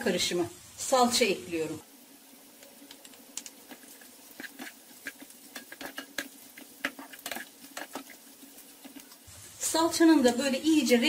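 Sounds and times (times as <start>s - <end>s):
faint sizzle: 0.0s - 11.0s
wooden spoon scraping pan: 3.6s - 9.2s.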